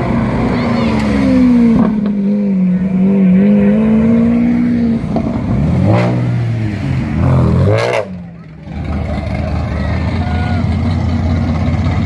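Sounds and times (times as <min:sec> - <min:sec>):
sports car engine pulling away: 0:00.1 - 0:12.0
car engine revving past: 0:00.2 - 0:08.3.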